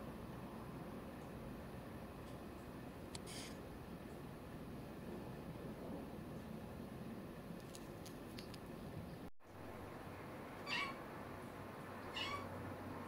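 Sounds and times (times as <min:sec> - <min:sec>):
kitten meowing: 0:10.6 - 0:11.0, 0:12.0 - 0:12.5.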